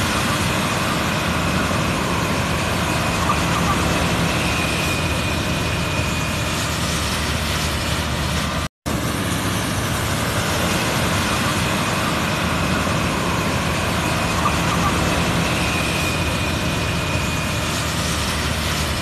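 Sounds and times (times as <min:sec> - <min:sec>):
harvester engine and machinery: 0:00.0 - 0:19.0.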